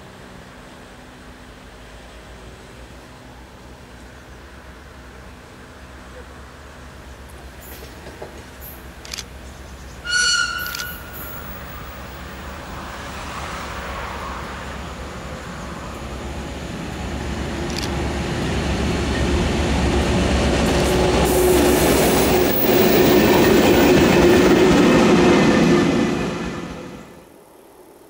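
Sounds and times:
diesel locomotive engine passing: 0.0 - 27.3
wagons rumbling on rails: 0.3 - 27.3.

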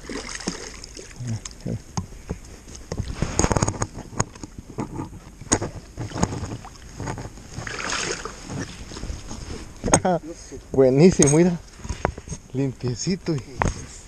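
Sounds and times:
water splashing: 0.0 - 1.9, 5.4 - 9.8
knocks and thumps of fish: 1.9 - 9.0, 11.8 - 12.4.

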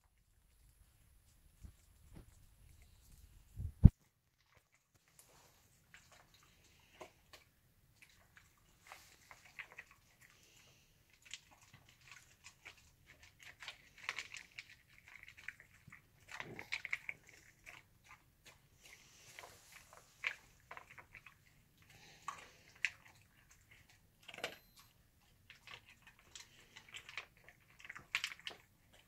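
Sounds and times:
dog chewing food: 5.8 - 29.0.

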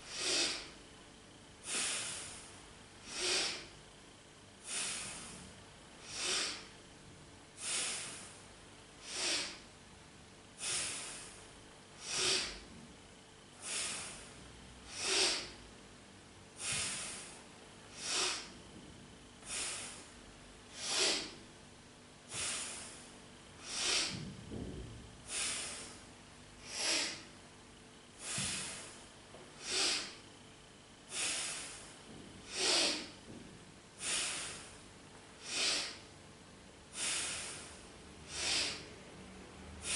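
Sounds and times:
woman breathing through the nose: 0.0 - 0.8, 1.6 - 3.8, 4.6 - 6.8, 7.5 - 9.8, 10.6 - 12.7, 13.5 - 15.7, 16.5 - 18.7, 19.4 - 21.4, 22.3 - 24.3, 25.2 - 27.4, 28.1 - 30.2, 31.1 - 33.3, 34.0 - 36.2, 36.8 - 39.0.

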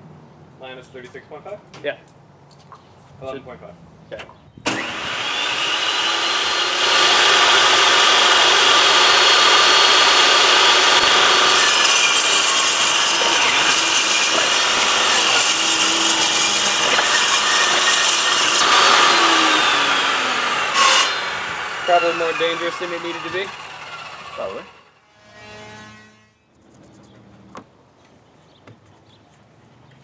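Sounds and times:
table saw cutting plywood: 4.7 - 26.3.

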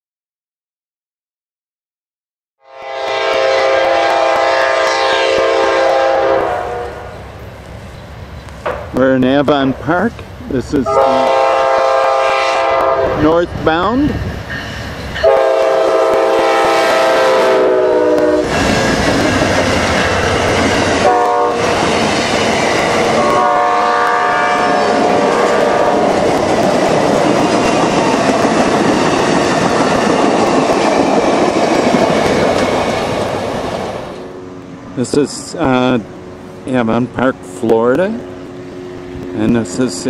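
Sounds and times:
locomotive air horn: 2.6 - 7.2, 10.8 - 13.2, 15.2 - 18.5, 21.0 - 21.6, 23.2 - 26.0
train cars clattering over rails: 8.6 - 10.4, 18.4 - 34.2.

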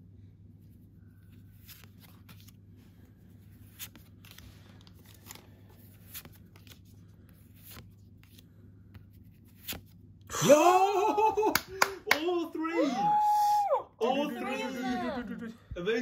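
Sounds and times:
low steady hum: 0.0 - 16.0
trading cards swishing and snapping: 1.3 - 2.7, 3.4 - 10.0.

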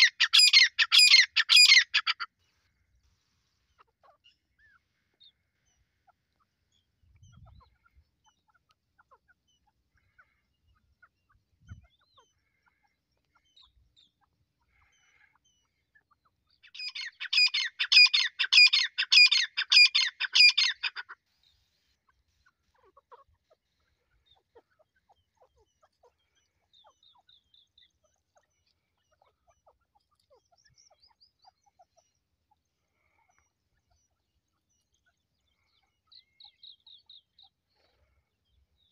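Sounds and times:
francolin calling: 0.0 - 2.3, 3.8 - 21.2
faint bird chirps: 0.0 - 38.9.

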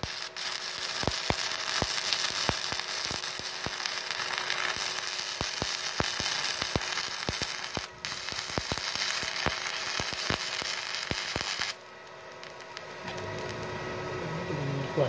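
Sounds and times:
welding arc crackling and popping: 0.0 - 13.9.

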